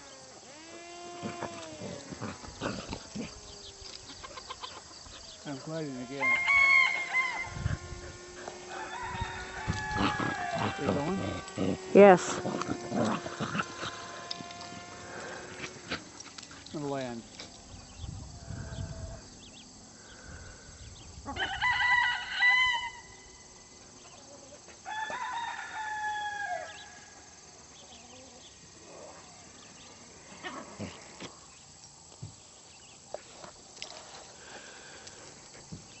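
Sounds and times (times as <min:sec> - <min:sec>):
rooster crowing: 0:05.7 - 0:11.9, 0:21.3 - 0:23.3, 0:24.8 - 0:27.2.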